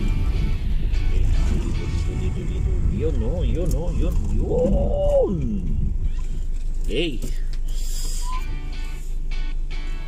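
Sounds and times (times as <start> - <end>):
music playing: 0.0 - 4.2, 8.2 - 10.0
car rumble inside cabin: 0.0 - 10.0.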